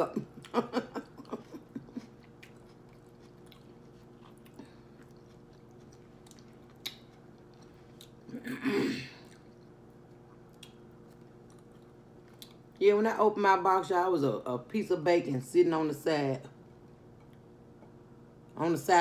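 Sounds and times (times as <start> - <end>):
chewing: 1.2 - 8.3, 9.2 - 12.8.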